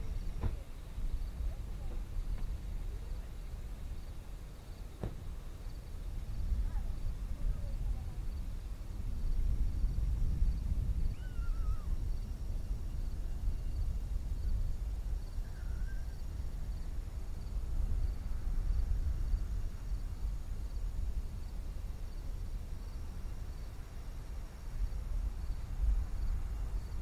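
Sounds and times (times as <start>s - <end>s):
crickets chirping: 0.0s - 27.0s
bird call: 11.1s - 12.0s.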